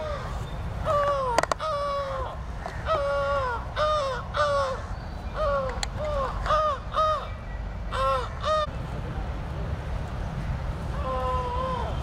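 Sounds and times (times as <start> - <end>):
crows cawing: 0.0 - 8.7.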